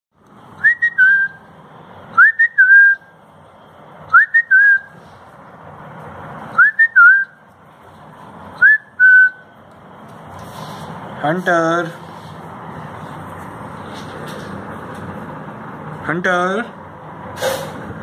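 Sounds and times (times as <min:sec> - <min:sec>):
person whistling two-note call: 0:08.6 - 0:09.4.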